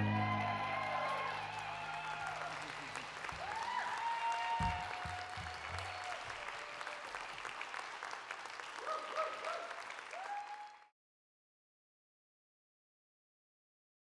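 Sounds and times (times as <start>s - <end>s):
audience applauding: 0.0s - 10.9s.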